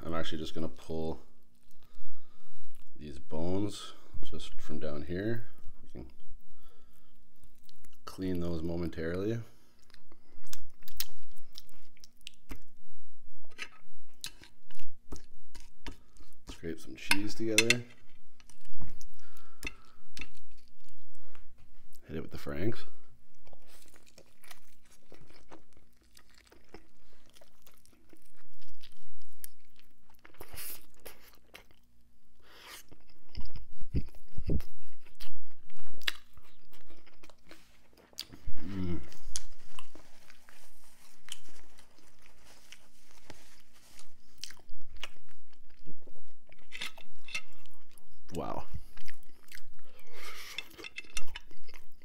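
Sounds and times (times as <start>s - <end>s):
chewing and crunching: 5.4s - 22.1s, 22.8s - 52.0s
person humming: 38.6s - 39.2s.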